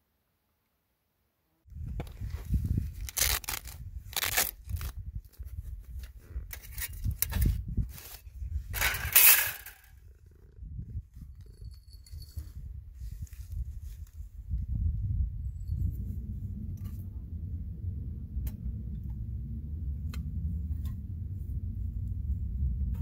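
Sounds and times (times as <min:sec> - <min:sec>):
metal plates clanking and scraping: 0:08.7 - 0:09.9
low rumble: 0:14.4 - 0:23.0.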